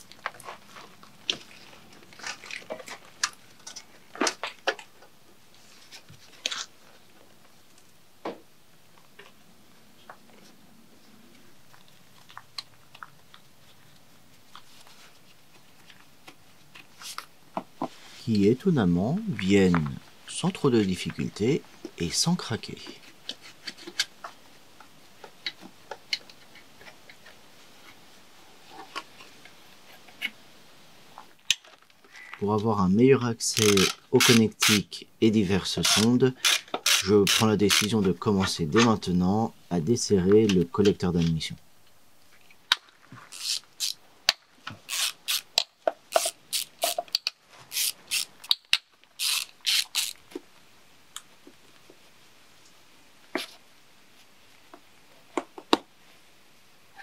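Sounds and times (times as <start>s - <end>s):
gloved hands clicking on fittings: 33.5s - 34.8s, 35.8s - 38.0s, 43.3s - 50.2s.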